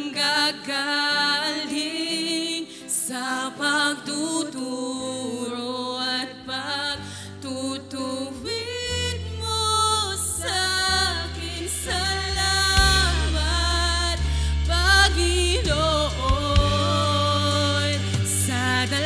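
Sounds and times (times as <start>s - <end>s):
women singing: 0.0s - 19.0s
low bass notes: 9.0s - 19.0s
live band playing: 12.8s - 19.0s.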